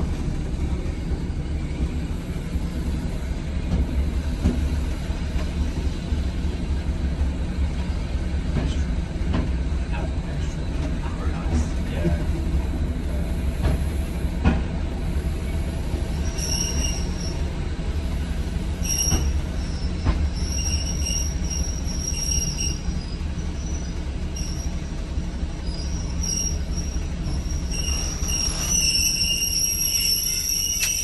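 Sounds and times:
locomotive diesel engine rumble: 0:00.0 - 0:31.0
track knocks: 0:03.6 - 0:05.6, 0:08.4 - 0:09.7, 0:13.6 - 0:14.8, 0:19.0 - 0:20.4
high wheel squeal: 0:16.1 - 0:17.5, 0:18.7 - 0:25.0, 0:25.6 - 0:31.0.

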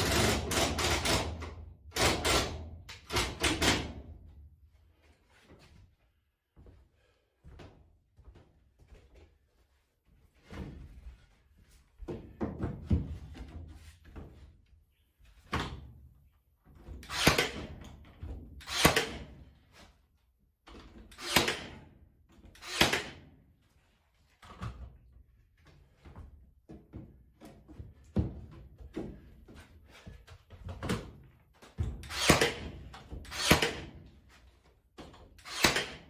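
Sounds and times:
nail gun shots: 0:00.0 - 0:04.0, 0:17.0 - 0:17.7, 0:18.6 - 0:19.4, 0:21.1 - 0:21.8, 0:22.6 - 0:23.3, 0:32.0 - 0:34.0, 0:35.4 - 0:36.0.

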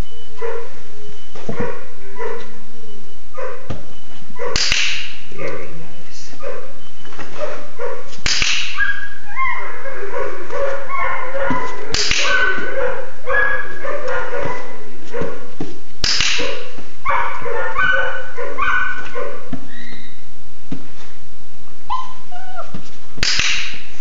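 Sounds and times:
puppy yapping and barking: 0:08.7 - 0:15.5, 0:16.3 - 0:20.1, 0:21.9 - 0:22.8.

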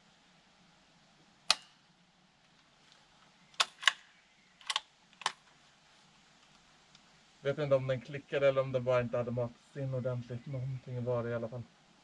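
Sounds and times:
rifle bolt metallic clicks: 0:01.5 - 0:01.8, 0:03.6 - 0:05.4
rifle firing pin click: 0:01.5 - 0:01.8, 0:03.6 - 0:05.4.

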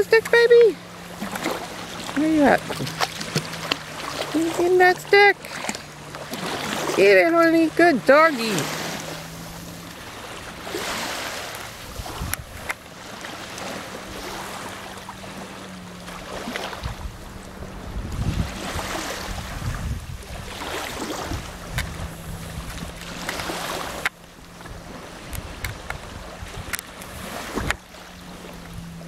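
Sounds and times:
river water lapping: 0:00.0 - 0:29.0
wind gusting on microphone: 0:06.4 - 0:12.7, 0:16.4 - 0:27.9.

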